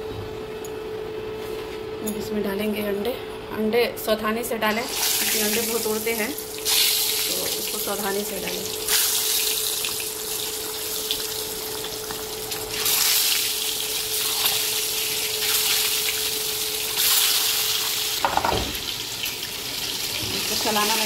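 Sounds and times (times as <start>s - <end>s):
eggs sizzling in hot oil: 4.7s - 21.0s.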